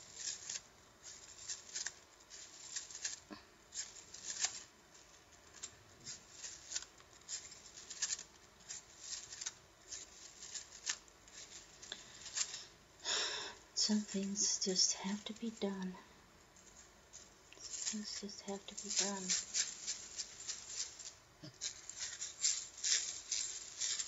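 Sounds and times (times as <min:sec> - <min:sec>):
plastic slinky coils clicking: 0:00.0 - 0:12.7, 0:17.5 - 0:24.0.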